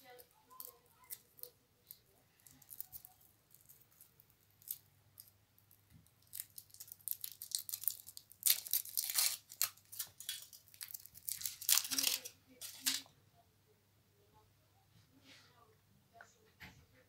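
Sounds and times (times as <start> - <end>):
foil wrapper crinkling and tearing: 0.0 - 13.0.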